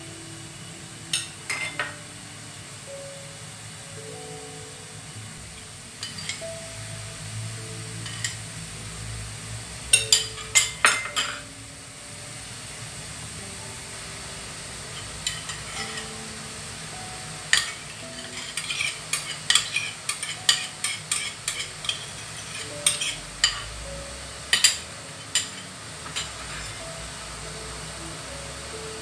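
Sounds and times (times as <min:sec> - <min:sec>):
utensils knocking against bowls: 0:17.5 - 0:23.7, 0:24.5 - 0:26.8.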